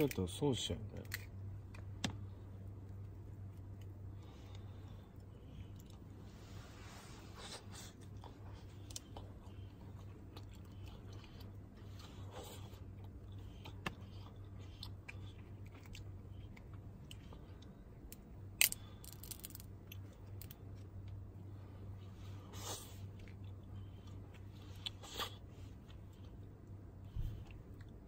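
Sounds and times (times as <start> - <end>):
crab shells cracking: 1.0 - 2.1, 18.1 - 20.7
chewing: 7.8 - 17.7
shell snapping: 18.1 - 19.7.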